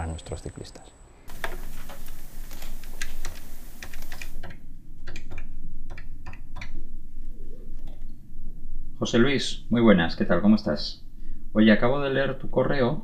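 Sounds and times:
street ambience hiss: 0.0 - 4.5.

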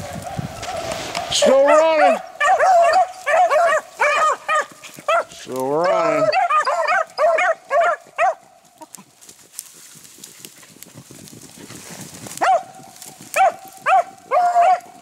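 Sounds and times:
rustling: 0.0 - 14.2
dogs barking in yelps: 0.2 - 8.9, 12.4 - 15.0.

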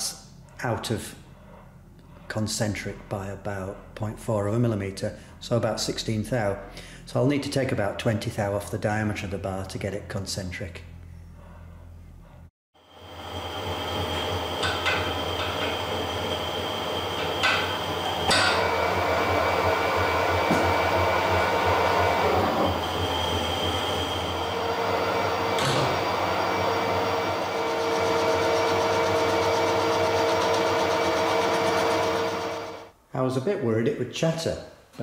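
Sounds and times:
lathe droning: 12.8 - 32.9.

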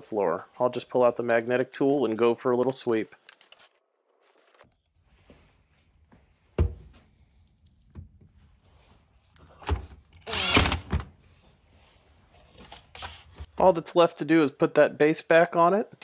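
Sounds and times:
cordless drill spinning: 10.2 - 11.0.

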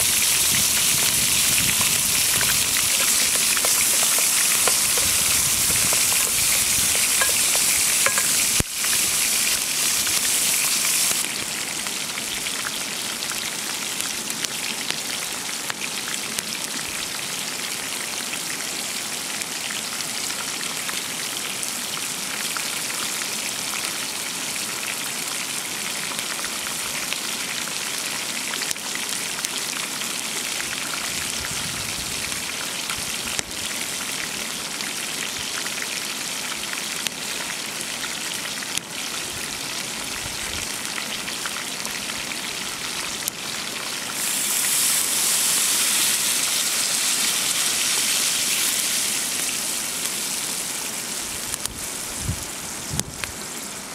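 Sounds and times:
meat and onion sizzling in a pan: 0.0 - 53.7.

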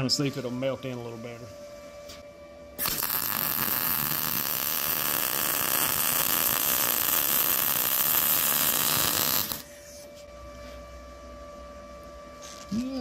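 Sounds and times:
welding arc sizzling: 2.8 - 9.7, 12.4 - 13.0.

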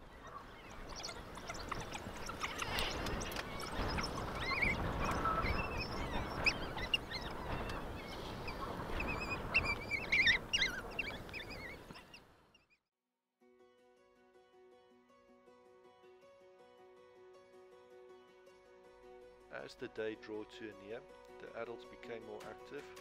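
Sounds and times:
wild dogs twittering and squeaking: 0.0 - 12.8.

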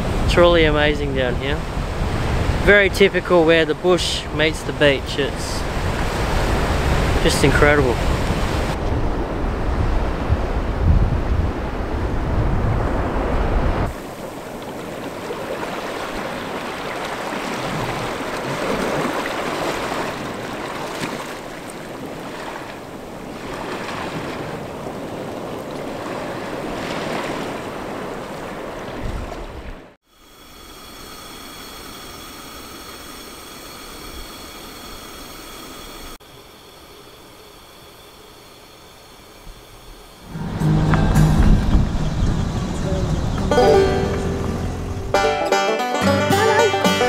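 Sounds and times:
wind gust on microphone: 0.0 - 21.2, 21.9 - 29.8, 40.3 - 45.2
small waves washing on rocks: 13.9 - 29.0
gas camp stove hissing: 30.1 - 39.7.

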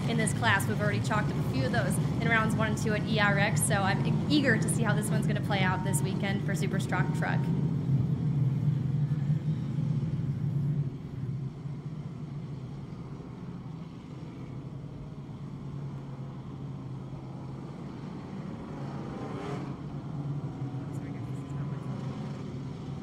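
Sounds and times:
race truck engines droning: 0.0 - 23.0.

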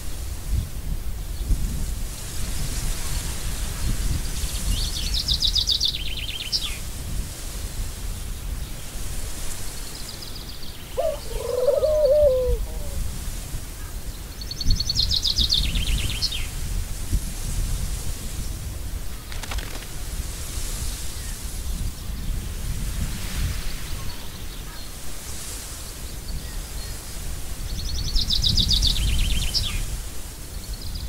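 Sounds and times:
lower wavering bird call: 10.9 - 13.0.

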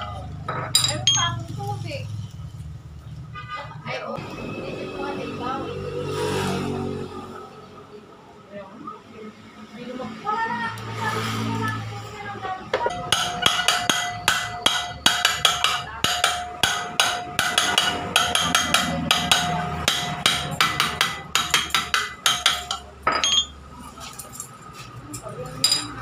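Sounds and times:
hammer striking metal: 12.8 - 23.6.

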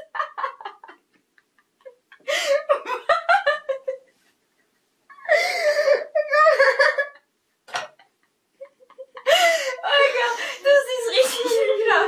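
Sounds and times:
women laughing: 0.0 - 4.1, 5.1 - 7.3, 7.9 - 10.4.

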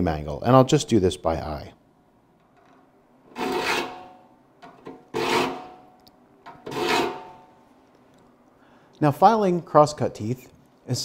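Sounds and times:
file rasping on saw teeth: 3.4 - 4.1, 5.1 - 5.8, 6.7 - 7.4.

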